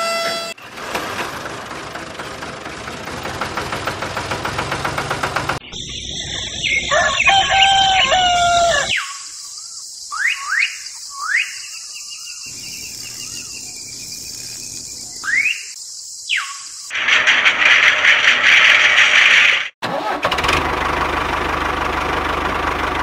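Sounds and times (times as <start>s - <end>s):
bird-like chirps: 5.6s - 16.9s
small engine cranking: 16.9s - 20.7s.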